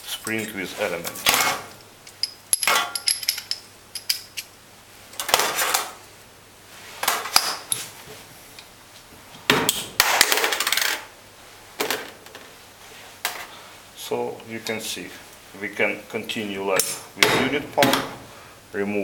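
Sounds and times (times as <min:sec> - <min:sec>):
steel parts clinking on tray: 0:02.1 - 0:04.5.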